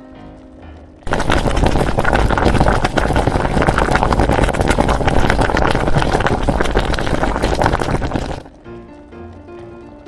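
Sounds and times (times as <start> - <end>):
broth bubbling at a rolling boil: 1.0 - 8.7.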